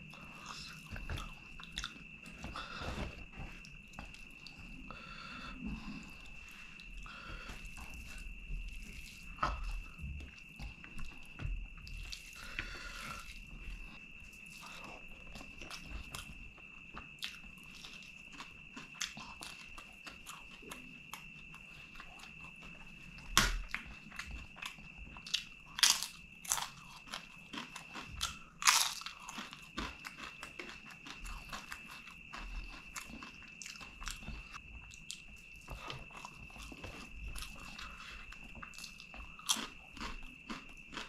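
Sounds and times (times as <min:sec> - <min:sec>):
soft wet chewing: 0:00.0 - 0:41.0
crunching crisp papadam: 0:25.2 - 0:35.3.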